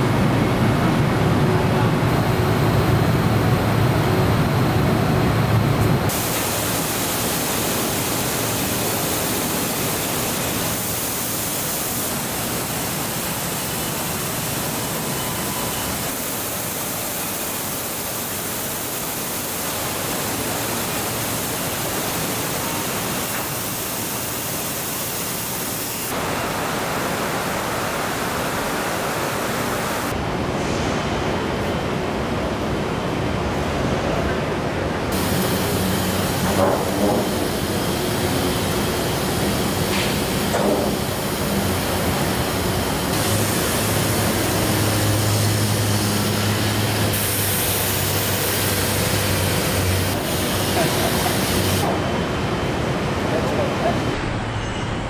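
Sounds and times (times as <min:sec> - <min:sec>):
paint booth airflow hiss: 0:06.1 - 0:30.8, 0:35.1 - 0:52.2.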